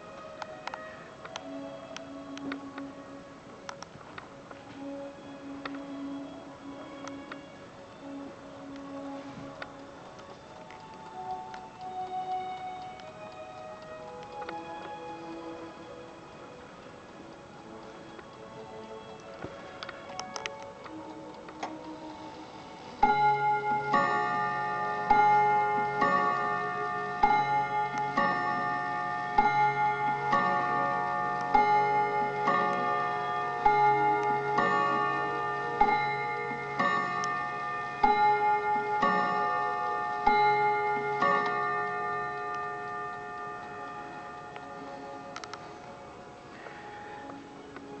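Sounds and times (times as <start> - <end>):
clock gong chimes: 23.0 - 45.4
clock movement clicking: 23.0 - 45.7.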